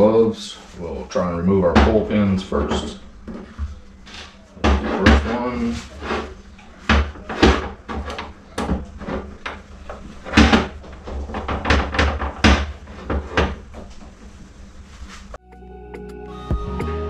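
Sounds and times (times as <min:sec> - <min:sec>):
background music: 0:15.4 - 0:17.0.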